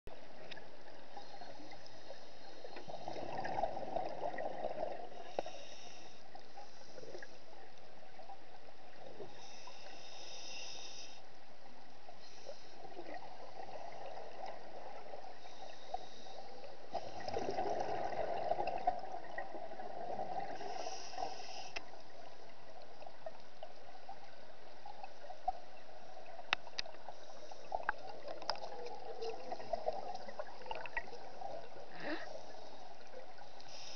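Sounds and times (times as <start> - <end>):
bubbly underwater exhalations: 17.1 - 20.6.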